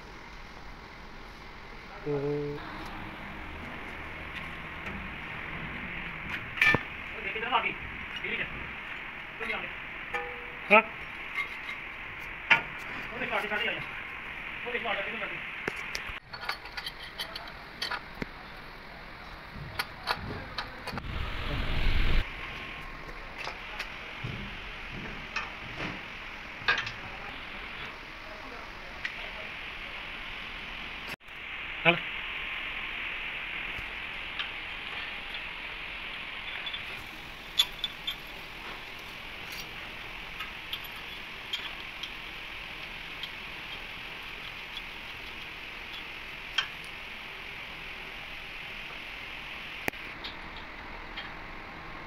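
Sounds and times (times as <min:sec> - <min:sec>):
steady hiss: 0:00.0 - 0:52.0
loud low rumble: 0:21.0 - 0:22.5.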